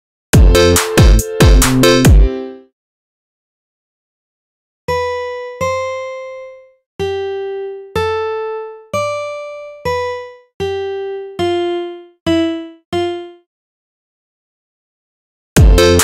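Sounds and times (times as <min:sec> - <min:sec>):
synthesized keyboard notes: 0:00.4 - 0:02.7, 0:15.6 - 0:16.0.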